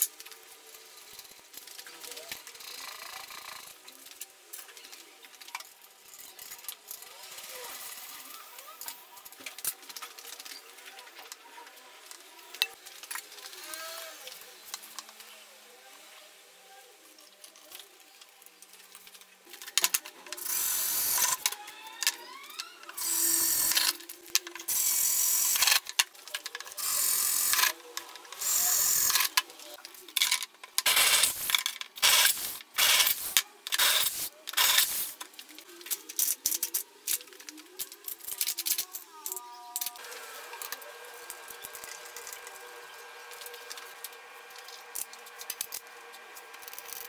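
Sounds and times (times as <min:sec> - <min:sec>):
power drill boring into metal: 0:20.4 - 0:24.0, 0:26.8 - 0:27.7, 0:28.4 - 0:29.4, 0:30.9 - 0:35.1.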